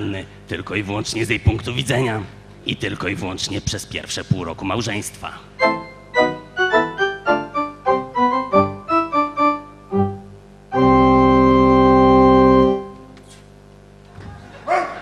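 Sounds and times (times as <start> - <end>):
organ keyboard playing: 5.6 - 13.2.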